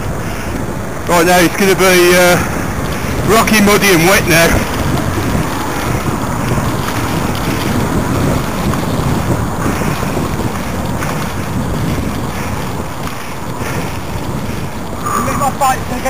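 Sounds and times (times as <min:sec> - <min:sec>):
tyres rolling through wet mud: 0:00.0 - 0:16.0
wind buffeting microphone: 0:00.0 - 0:16.0
bike knocks and rattles: 0:02.8 - 0:15.0.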